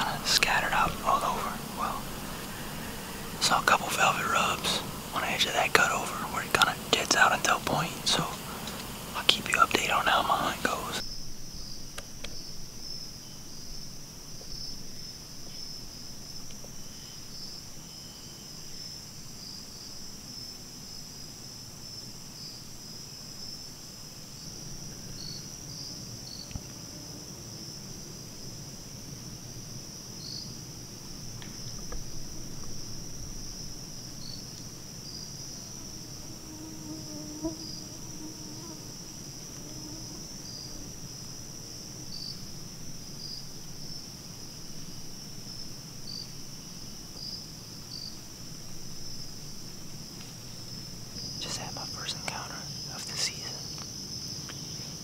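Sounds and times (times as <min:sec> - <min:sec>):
faint ticks: 0:00.0 - 0:11.0, 0:11.9 - 0:12.4, 0:16.4 - 0:16.8, 0:31.0 - 0:32.9, 0:48.6 - 0:52.4
insects trilling: 0:00.0 - 0:55.0.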